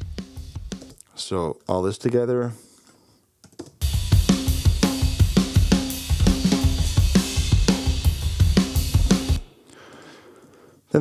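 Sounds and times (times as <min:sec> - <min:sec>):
recorded drum track: 0:00.0 - 0:01.1, 0:03.5 - 0:09.7.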